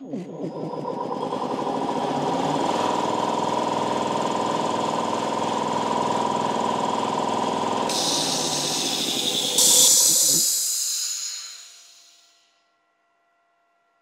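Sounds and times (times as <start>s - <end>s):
air compressor running: 0.0s - 12.3s
high hiss: 7.9s - 12.4s.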